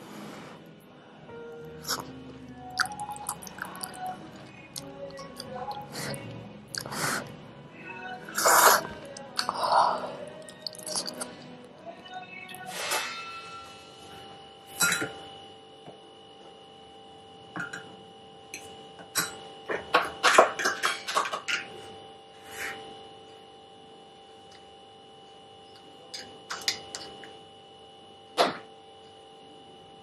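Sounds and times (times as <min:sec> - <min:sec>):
faint steady hum: 0:00.0 - 0:30.0
utensils clinking against glass bowl: 0:20.0 - 0:21.7.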